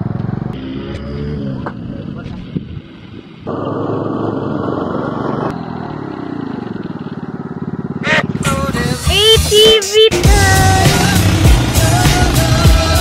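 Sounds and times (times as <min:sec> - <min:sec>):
go-kart engine running: 0:00.0 - 0:13.0
voices: 0:08.0 - 0:13.0.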